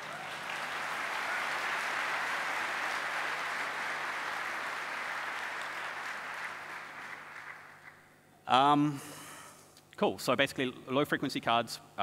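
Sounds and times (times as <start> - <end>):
audience applauding: 0.0 - 8.1.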